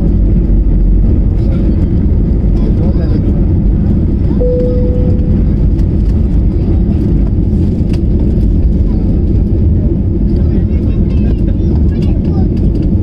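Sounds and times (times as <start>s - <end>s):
airliner cabin rumble: 0.0s - 13.0s
brief steady tone: 4.4s - 5.8s.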